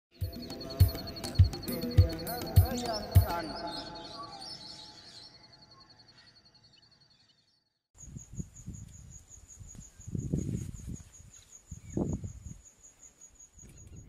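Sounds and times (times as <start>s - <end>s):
insect chirping: 0.2s - 14.0s.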